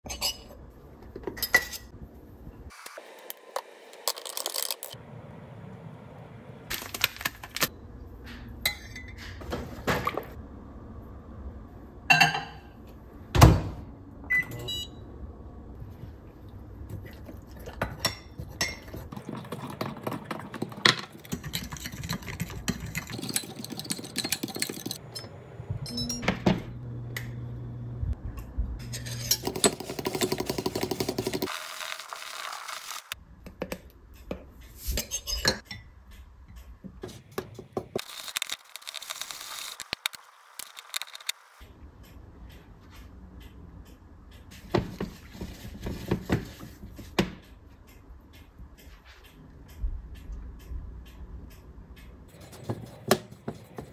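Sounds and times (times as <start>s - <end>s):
dishes and utensils clinking: 0.0s - 1.9s, 8.6s - 10.2s, 12.1s - 12.7s
low microwave hum: 5.0s - 19.0s, 25.0s - 29.4s.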